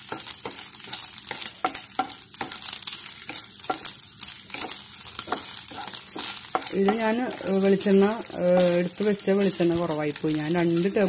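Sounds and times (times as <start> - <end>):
prawns sizzling in frying pan: 0.0 - 11.0
wooden spatula scraping pan: 4.5 - 10.0.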